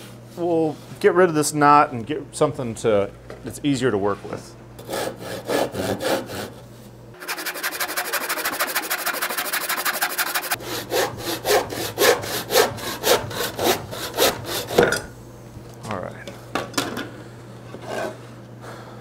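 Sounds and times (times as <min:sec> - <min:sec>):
handsaw cutting wood: 0:04.8 - 0:06.6, 0:07.2 - 0:14.8.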